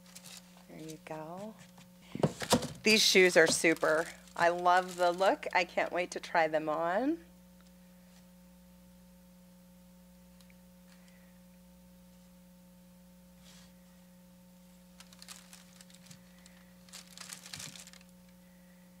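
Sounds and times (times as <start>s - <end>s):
tissue paper rustling: 0.0s - 0.6s, 2.3s - 5.6s, 14.8s - 18.1s
electrical hum: 0.0s - 19.0s.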